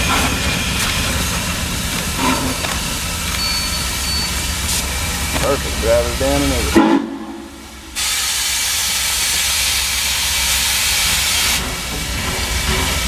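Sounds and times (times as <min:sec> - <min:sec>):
steam hissing: 0:00.0 - 0:13.0
low rumble: 0:05.7 - 0:08.4.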